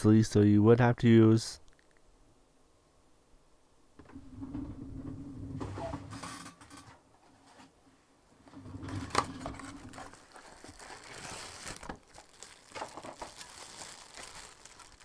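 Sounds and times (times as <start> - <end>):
crinkling and rustling objects: 8.4 - 15.0.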